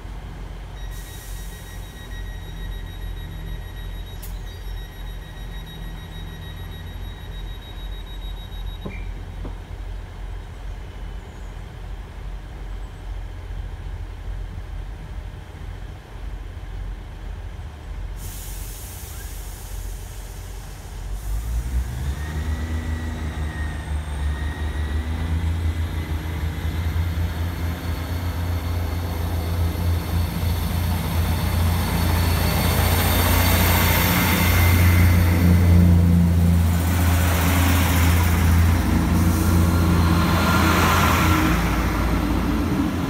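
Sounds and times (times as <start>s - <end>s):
diesel engines whining: 0.0s - 14.8s, 17.9s - 43.0s
air brakes hissing: 0.8s - 2.6s, 18.2s - 21.9s, 27.2s - 42.0s
diesel train idling: 13.4s - 43.0s.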